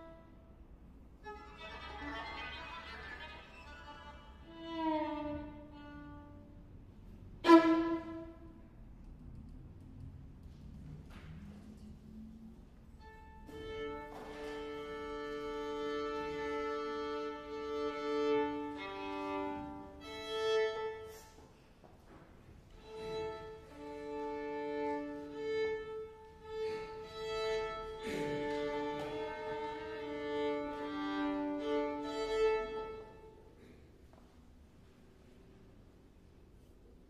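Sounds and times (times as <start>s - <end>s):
violin duo bowed notes: 0.0s - 0.4s, 1.2s - 6.7s, 7.4s - 8.6s, 13.0s - 21.3s, 22.8s - 33.4s.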